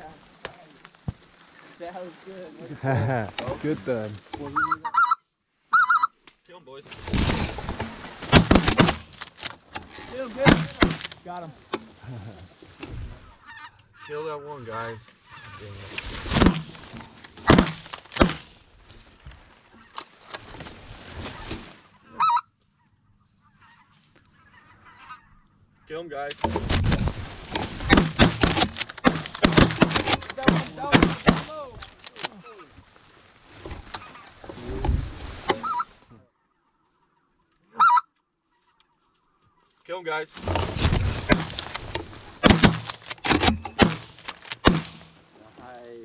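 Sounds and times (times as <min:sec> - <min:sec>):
goose calls: 0:04.4 - 0:06.2, 0:13.2 - 0:15.8, 0:21.2 - 0:22.6, 0:23.4 - 0:25.9, 0:33.8 - 0:34.4, 0:35.5 - 0:36.0, 0:37.0 - 0:39.1
high goose call: 0:04.5 - 0:06.2, 0:22.1 - 0:22.5, 0:35.6 - 0:36.0, 0:37.7 - 0:38.8
shotgun blasts: 0:10.4 - 0:11.2, 0:27.8 - 0:31.6, 0:42.4 - 0:45.1
sharp knocks: 0:17.4 - 0:18.5, 0:41.2 - 0:45.1.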